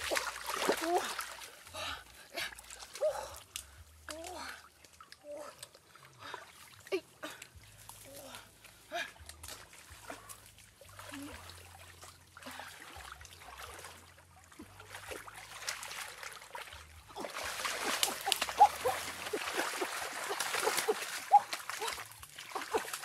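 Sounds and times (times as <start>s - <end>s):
hands splashing in muddy water: 0.0s - 1.6s, 9.1s - 23.0s.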